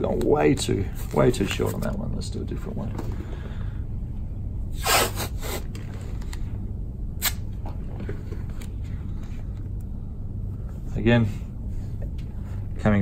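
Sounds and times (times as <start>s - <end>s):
steady low hum: 0.0s - 13.0s
tape tearing: 7.2s - 7.5s.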